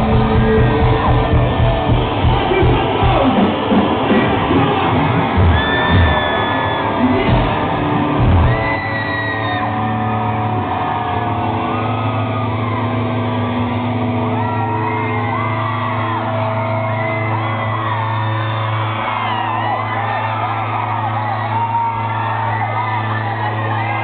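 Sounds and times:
drum hits: 0:00.0 - 0:04.6, 0:07.2 - 0:08.7
audience whooping and shouting: 0:00.0 - 0:24.0.

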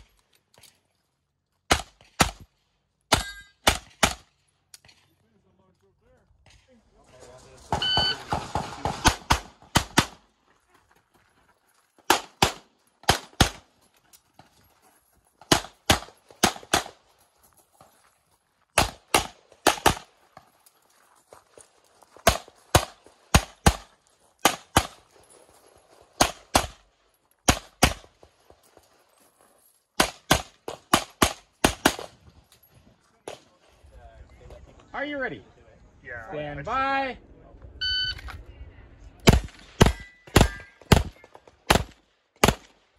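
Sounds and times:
pistol shots: 0:01.7 - 0:02.5, 0:03.1 - 0:04.3, 0:07.7 - 0:10.2, 0:12.1 - 0:13.7, 0:15.4 - 0:17.0, 0:18.8 - 0:20.1, 0:22.2 - 0:25.0, 0:26.2 - 0:28.2, 0:30.0 - 0:32.2, 0:39.2 - 0:42.8.

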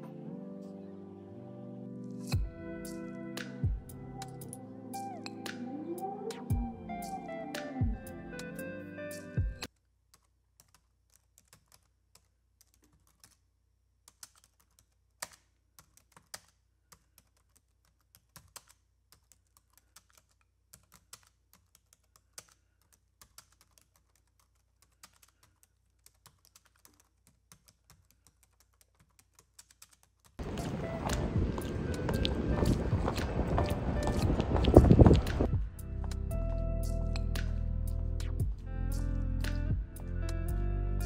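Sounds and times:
music: 0:00.0 - 0:09.7, 0:30.4 - 0:41.0.

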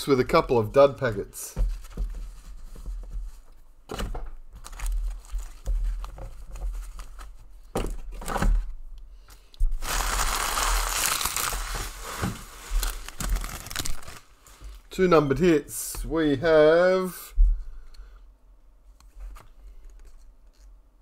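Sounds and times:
packaging wrapper crinkling: 0:04.6 - 0:06.1, 0:09.7 - 0:14.9.

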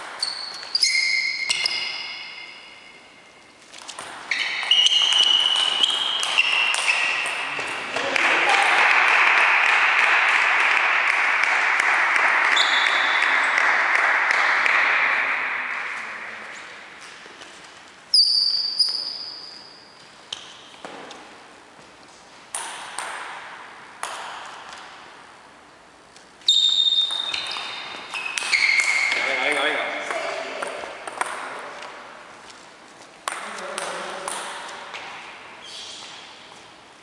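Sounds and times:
table tennis ball bouncing: 0:00.0 - 0:03.1, 0:03.8 - 0:09.0, 0:09.7 - 0:16.0, 0:22.5 - 0:25.1, 0:26.5 - 0:32.2, 0:33.2 - 0:35.4.

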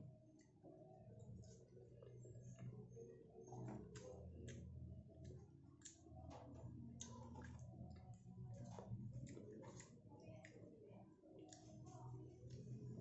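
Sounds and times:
chewing: 0:03.4 - 0:13.0.

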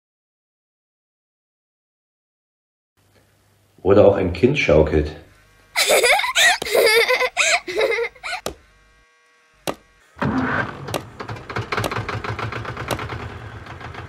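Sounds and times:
child giggling: 0:05.8 - 0:08.5
tractor engine chugging: 0:10.9 - 0:14.0.

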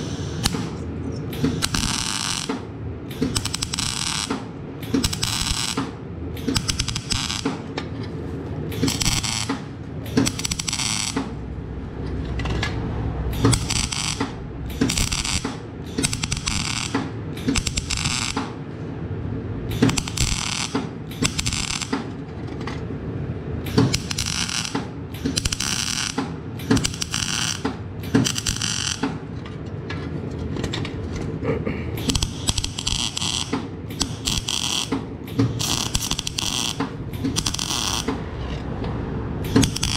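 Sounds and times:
steady low hum: 0:00.0 - 0:39.9
welding arc crackling: 0:01.5 - 0:02.5, 0:03.3 - 0:04.4, 0:05.0 - 0:05.8, 0:06.6 - 0:07.5, 0:08.7 - 0:09.5, 0:10.2 - 0:11.4, 0:13.3 - 0:18.4, 0:19.7 - 0:22.0, 0:23.7 - 0:24.8, 0:25.4 - 0:26.2, 0:26.8 - 0:27.6, 0:28.2 - 0:29.0, 0:32.0 - 0:35.0, 0:35.6 - 0:38.2, 0:39.4 - 0:39.9.

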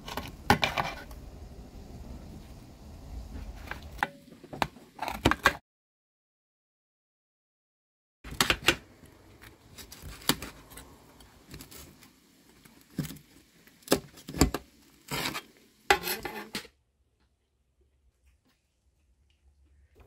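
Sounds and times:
blade scraping metal tray: 0:15.1 - 0:16.7.

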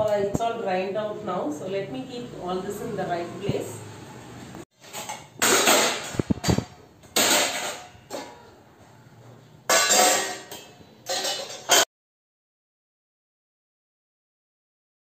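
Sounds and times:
dishes clattering: 0:04.8 - 0:08.6, 0:09.6 - 0:11.9.

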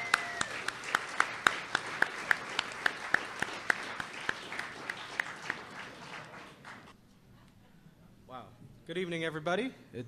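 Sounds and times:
audience applauding: 0:00.0 - 0:07.0
close hand claps: 0:00.0 - 0:07.0.

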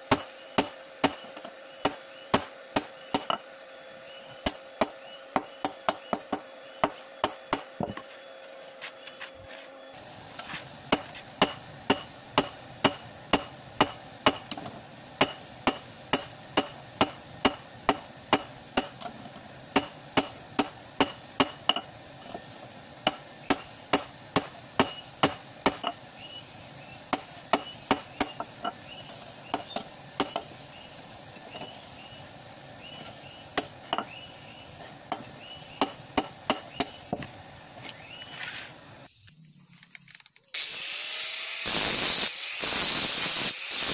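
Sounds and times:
hammer striking metal on anvil: 0:10.9 - 0:14.6, 0:15.2 - 0:19.0.

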